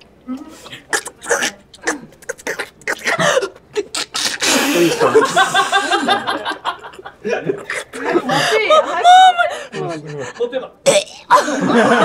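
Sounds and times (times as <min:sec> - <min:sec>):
person laughing nervously: 0:04.4 - 0:09.2.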